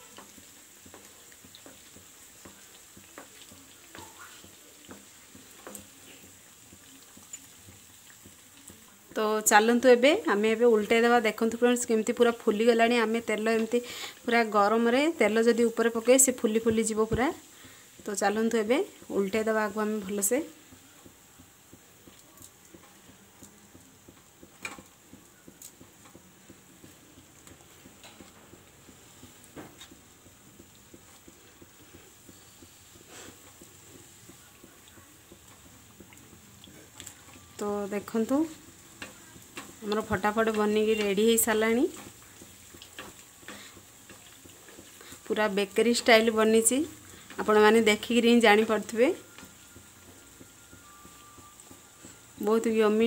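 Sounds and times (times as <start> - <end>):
food deep-frying in oil: 0.0 - 53.0
spoon splashing hot oil: 0.0 - 53.0.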